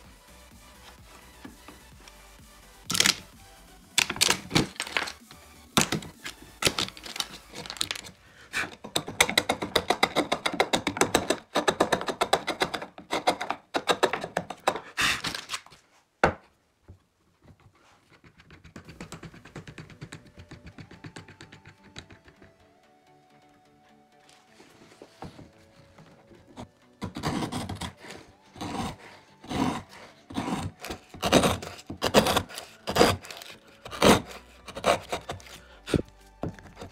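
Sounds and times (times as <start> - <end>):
rapid taps and clicks: 8.7 - 14.8, 18.1 - 22.6
hand tool knocking on wood: 8.8 - 14.9.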